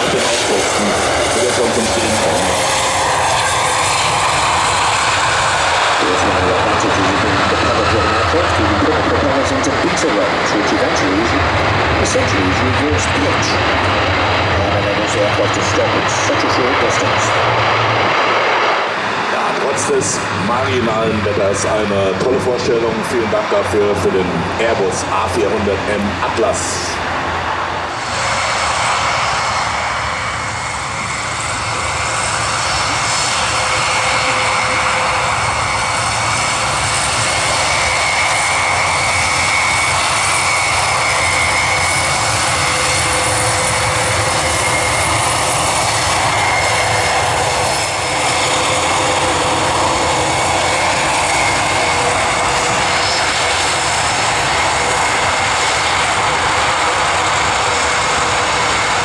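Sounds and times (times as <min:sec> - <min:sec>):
turboprop aircraft engines droning: 0:00.0 - 0:59.0.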